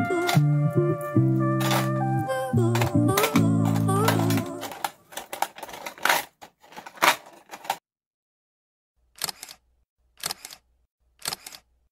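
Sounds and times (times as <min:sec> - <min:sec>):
pens and scissors clicking in organiser: 0:01.6 - 0:02.0, 0:02.7 - 0:07.8.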